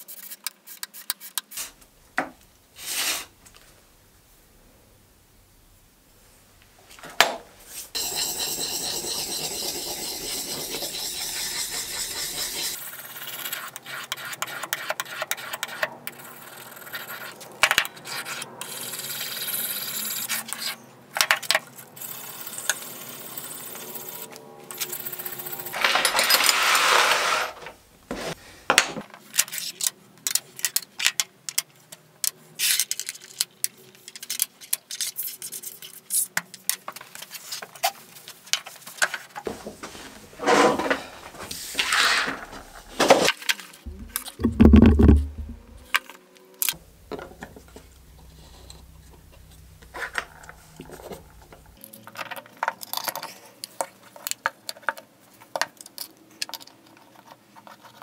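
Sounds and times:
metal scraping on sharpening stone: 0:08.0 - 0:12.8.

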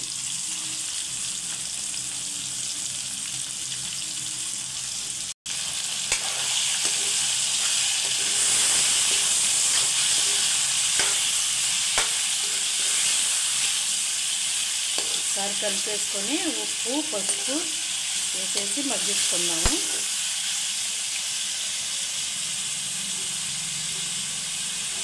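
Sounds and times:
meat sizzling in hot oil: 0:00.0 - 0:25.0
spoon tapping pan: 0:06.1 - 0:11.4, 0:12.0 - 0:12.6, 0:15.0 - 0:15.4, 0:17.1 - 0:17.6
metal spoon scraping pan: 0:06.1 - 0:13.9, 0:14.9 - 0:15.4, 0:17.0 - 0:17.8.

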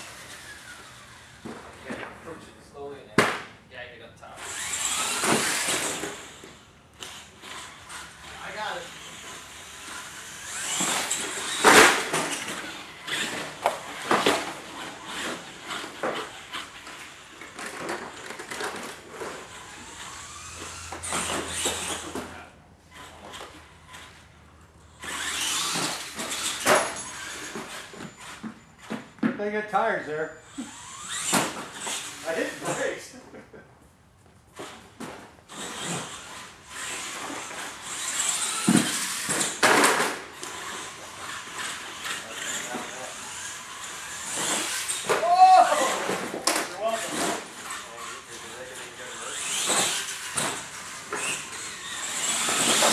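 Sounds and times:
toy truck motor whining: 0:00.0 - 0:01.7, 0:04.3 - 0:29.2, 0:30.0 - 0:33.0, 0:34.5 - 0:52.9
sharp knocks and clatter: 0:38.6 - 0:40.2.

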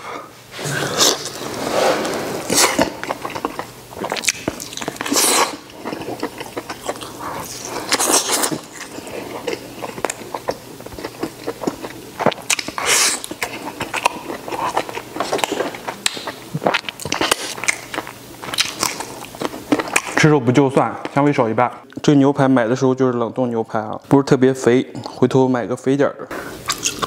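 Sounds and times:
man chewing food: 0:00.0 - 0:20.2, 0:26.3 - 0:27.0
sucking slurps: 0:00.5 - 0:10.4
wet mouth smacking: 0:02.5 - 0:08.8.

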